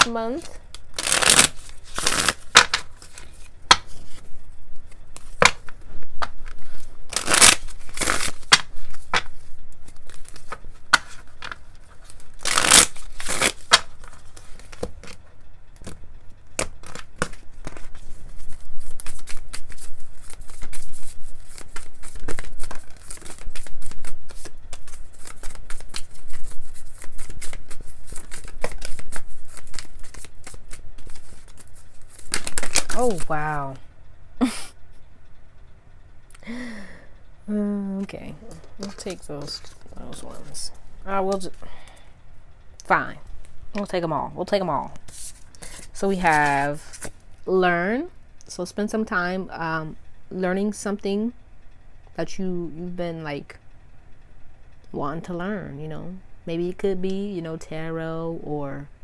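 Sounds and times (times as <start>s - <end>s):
cards being shuffled: 0.0s - 15.2s, 15.8s - 33.8s, 38.5s - 41.6s, 44.9s - 47.2s.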